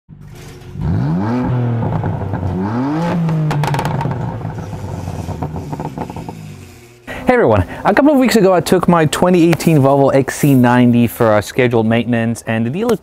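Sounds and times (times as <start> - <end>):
car engine revving: 0.1 - 7.0.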